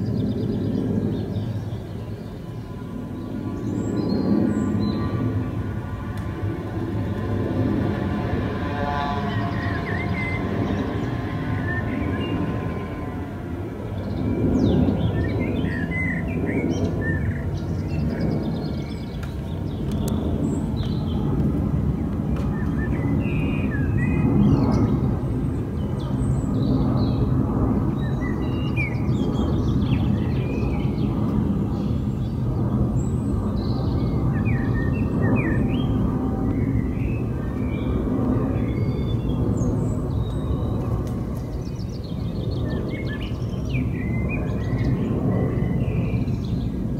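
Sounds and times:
airplane passing overhead: 0:00.0 - 0:46.9.

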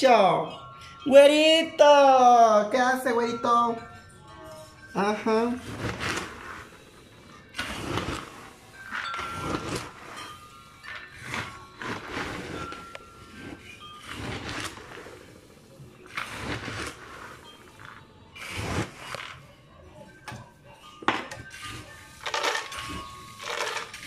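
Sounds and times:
peanuts rattling in plastic tub: 0:22.2 - 0:24.0.

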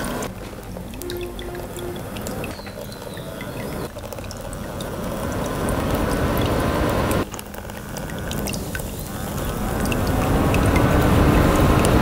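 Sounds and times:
droplets ticking: 0:00.0 - 0:12.0
mist maker gurgling water: 0:00.0 - 0:12.0
small fans running: 0:00.0 - 0:12.0.

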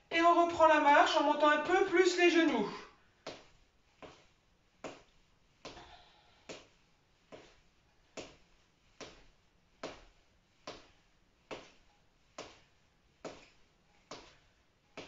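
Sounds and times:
footsteps on foam mat: 0:03.2 - 0:05.9, 0:06.5 - 0:15.0.

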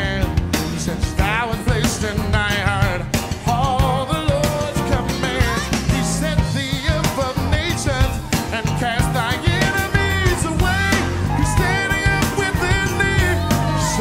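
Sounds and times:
band music: 0:00.0 - 0:14.0
person singing: 0:00.0 - 0:14.0.

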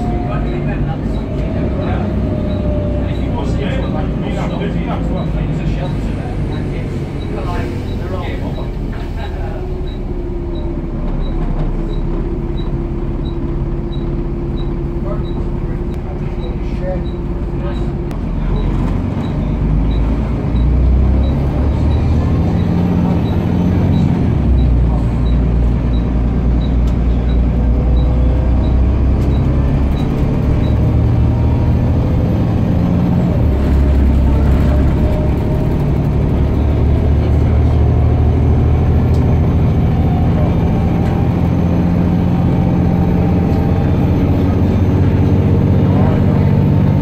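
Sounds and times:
bus diesel engine: 0:00.0 - 0:47.0.

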